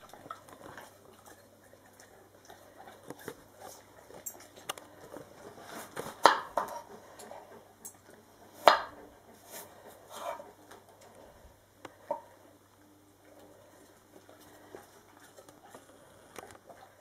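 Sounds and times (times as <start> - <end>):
knife cutting an apple: 5.8 - 6.9, 8.6 - 9.6.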